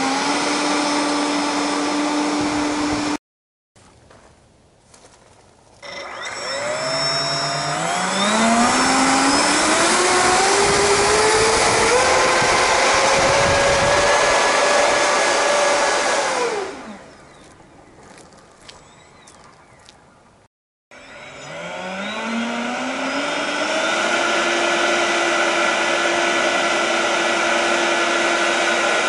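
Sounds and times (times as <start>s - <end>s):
electric ducted fans whining: 5.8s - 17.9s, 21.0s - 29.0s.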